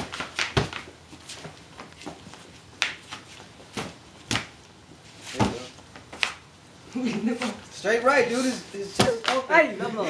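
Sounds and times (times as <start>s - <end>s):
boxing gloves thumping: 0.0s - 0.8s.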